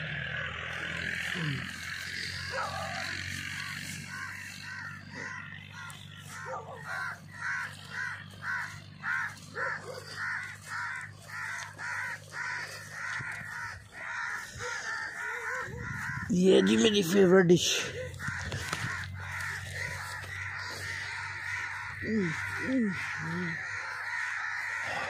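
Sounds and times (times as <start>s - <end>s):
bird harsh calls: 0.0s - 25.0s.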